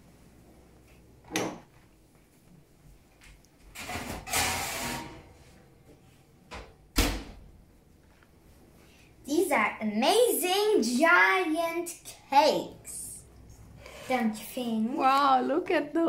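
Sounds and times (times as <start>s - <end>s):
oven rack scraping slide: 3.8s - 5.5s.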